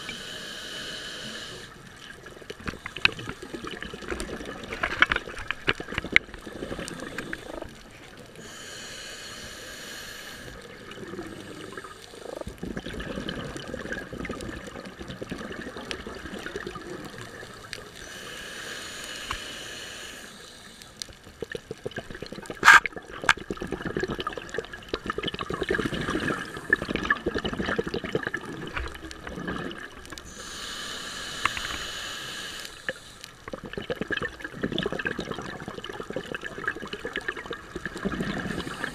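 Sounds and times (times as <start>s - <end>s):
underwater gurgling: 0.0s - 38.9s
exhaled bubbles rushing: 2.2s - 7.8s, 10.7s - 17.6s, 21.4s - 30.2s, 33.5s - 38.9s.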